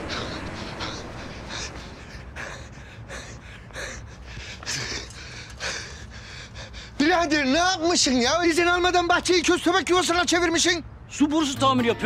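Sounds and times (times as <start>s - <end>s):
man panting while running: 0.0s - 7.0s
low outdoor rumble: 0.0s - 11.2s.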